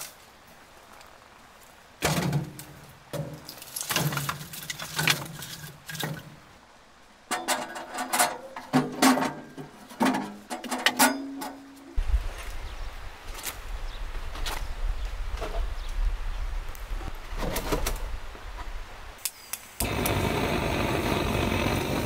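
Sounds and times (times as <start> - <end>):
ringing metal clanks: 10.9 - 11.6.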